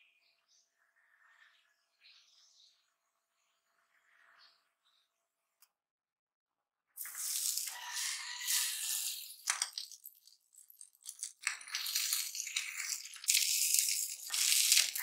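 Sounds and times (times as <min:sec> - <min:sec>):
tortilla sizzling on grill pan: 0:07.0 - 0:09.4.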